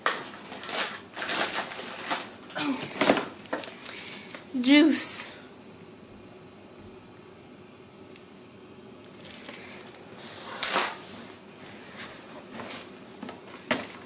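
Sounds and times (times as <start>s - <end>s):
packaging rustling: 0.0s - 4.3s, 9.1s - 11.1s, 11.8s - 14.0s
faint room hum: 0.0s - 14.0s.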